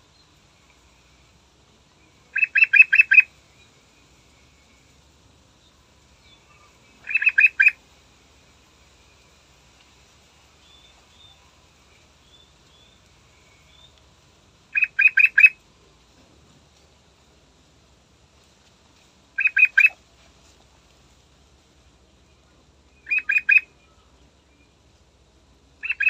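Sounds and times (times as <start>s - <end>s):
faint high chirps: 1.9s - 7.8s, 8.9s - 14.1s, 22.2s - 24.8s
bird singing clear notes: 2.3s - 3.7s, 6.3s - 7.8s, 14.7s - 15.6s, 23.0s - 24.7s.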